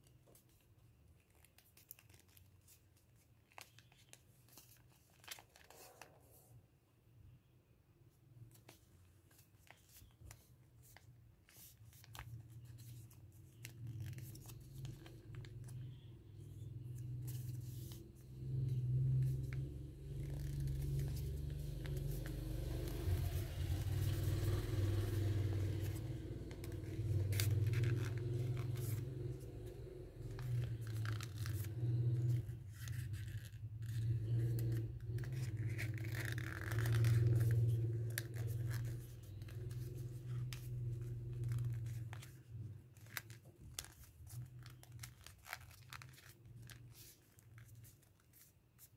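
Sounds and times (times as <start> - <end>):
paper being folded and creased: 0.0 - 6.4, 8.4 - 48.9
low steady hum: 12.1 - 47.4.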